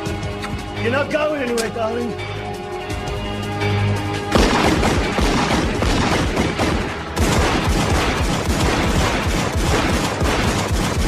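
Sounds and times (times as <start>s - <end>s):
rapid pistol fire: 4.3s - 11.0s.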